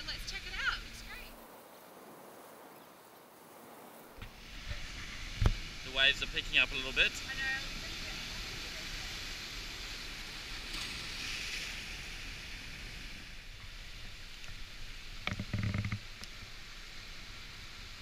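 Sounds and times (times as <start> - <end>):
ocean surf breaking on rocks: 0.0 - 13.4.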